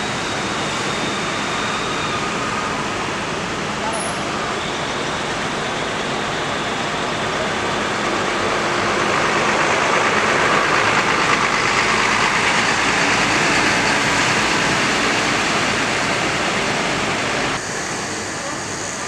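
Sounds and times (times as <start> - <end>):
bus engine passing: 0.0 - 19.0.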